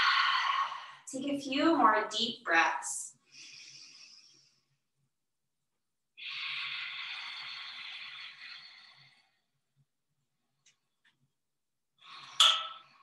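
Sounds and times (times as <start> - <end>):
woman breathing deeply: 0.0 - 1.1, 3.2 - 4.7, 6.2 - 9.6.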